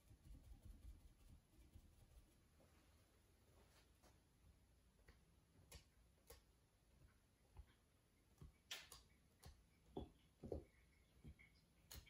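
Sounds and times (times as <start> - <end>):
sponge dabbing paint on canvas: 0.0 - 2.7.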